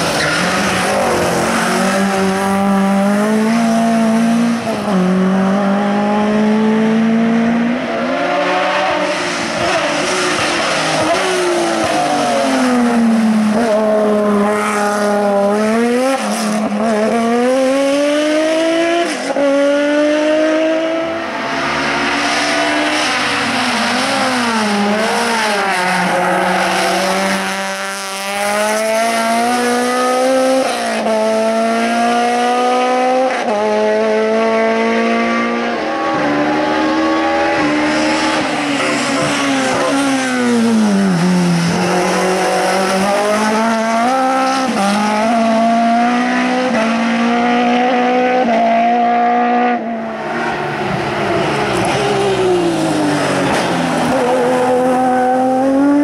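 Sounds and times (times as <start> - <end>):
race car engines revving: 0.0 - 56.0.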